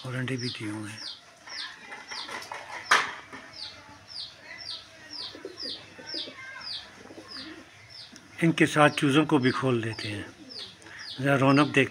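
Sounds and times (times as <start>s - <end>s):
chicks peeping: 3.6s - 11.9s.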